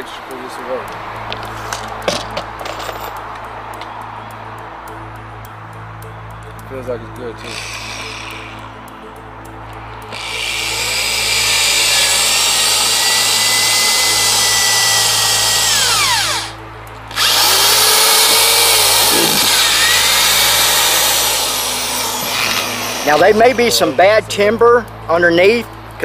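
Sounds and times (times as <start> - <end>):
electric drill boring into wood: 7.4 - 8.7, 10.1 - 23.8.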